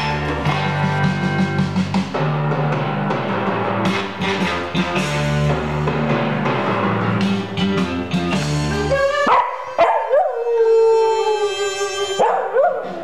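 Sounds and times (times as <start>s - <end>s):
theme music with heavy drums: 0.0s - 8.8s
dog howling: 8.7s - 13.0s.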